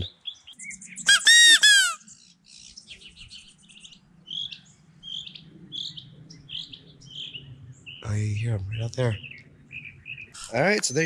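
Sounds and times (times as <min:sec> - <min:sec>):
distant bird calls: 0:00.0 - 0:11.0
quail call high notes: 0:01.1 - 0:02.0.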